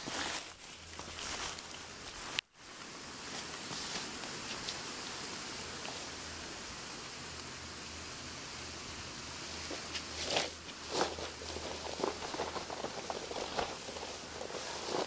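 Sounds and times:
backpack rustling on dry grass: 0.0s - 2.4s, 3.2s - 6.3s, 9.5s - 15.0s
steady outdoor hiss: 0.0s - 15.0s.

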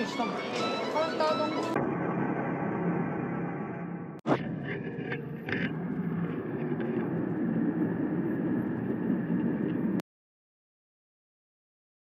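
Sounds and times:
jet engine rumble: 1.8s - 10.0s.

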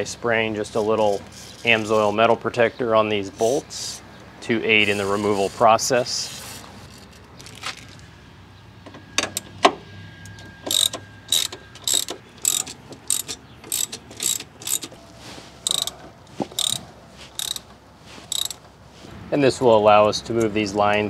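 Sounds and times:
metallic clicks and knocks: 8.8s - 15.0s, 15.6s - 16.8s, 17.4s - 18.7s
ratchet clicking: 10.3s - 15.0s, 15.6s - 17.7s, 18.3s - 18.7s.

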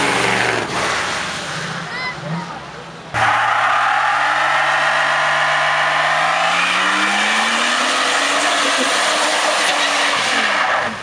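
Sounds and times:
car engine revving: 0.0s - 11.0s
tyre squealing on asphalt: 3.2s - 11.0s.

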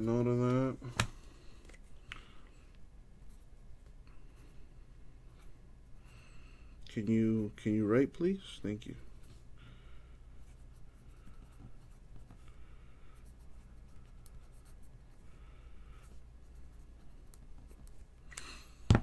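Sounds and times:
pen scratching on paper: 13.2s - 15.2s.

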